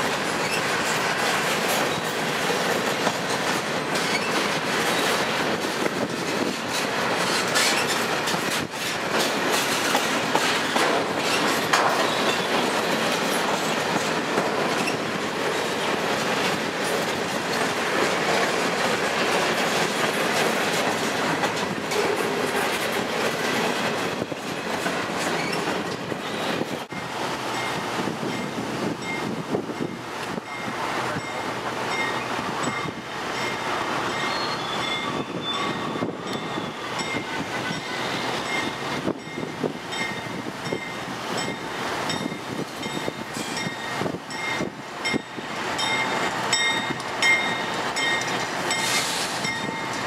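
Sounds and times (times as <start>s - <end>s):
wheels clicking over rail joints: 0.0s - 26.2s
freight train wheels rumbling: 0.0s - 50.0s.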